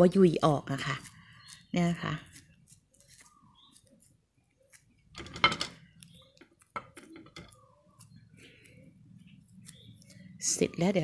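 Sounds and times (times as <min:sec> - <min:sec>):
knocks and clinks against plate: 0:05.2 - 0:05.8.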